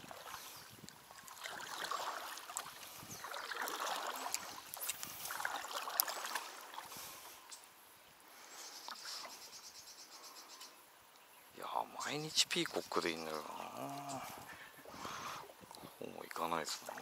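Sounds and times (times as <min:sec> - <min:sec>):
paddle strokes in water: 0:00.0 - 0:07.4
swirling trickling water: 0:00.0 - 0:09.5, 0:12.1 - 0:17.0.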